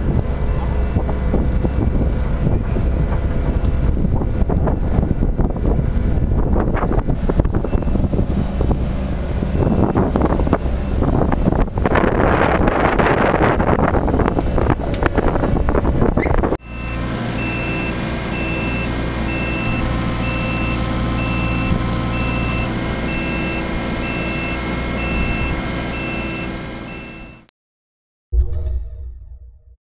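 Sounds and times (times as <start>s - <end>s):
wind buffeting microphone: 0.0s - 16.6s
diesel engine running: 0.0s - 27.5s
travel alarm beeping: 16.6s - 27.5s.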